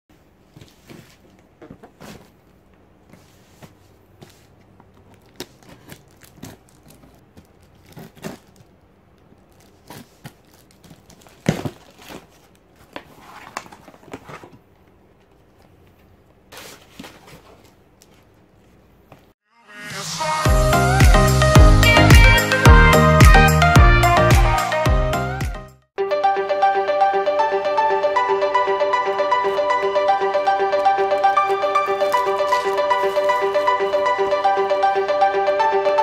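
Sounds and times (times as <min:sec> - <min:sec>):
paper and cardboard crinkling: 0:00.4 - 0:18.8, 0:31.1 - 0:34.4
tape tearing: 0:05.0 - 0:14.6, 0:31.2 - 0:34.2.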